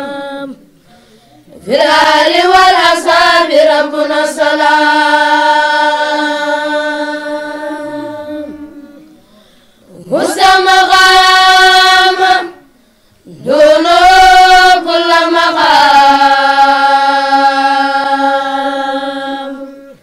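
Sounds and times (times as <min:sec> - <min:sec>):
person chanting recitation: 0:00.0 - 0:00.7, 0:01.5 - 0:09.3, 0:09.9 - 0:20.0.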